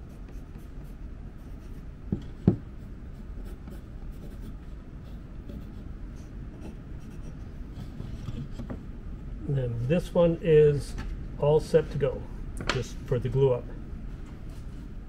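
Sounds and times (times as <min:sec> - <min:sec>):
pencil scratching on wood: 0:00.0 - 0:01.8, 0:03.4 - 0:08.6
knocks on wood: 0:02.1 - 0:02.6.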